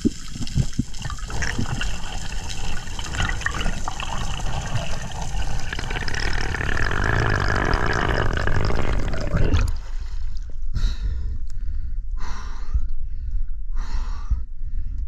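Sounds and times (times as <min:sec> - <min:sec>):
underwater rushing water: 0:00.0 - 0:09.8.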